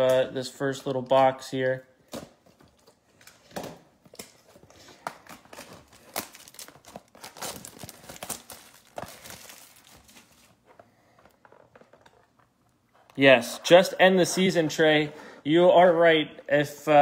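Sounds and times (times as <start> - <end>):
wrapping and cardboard crinkling: 4.1 - 14.8.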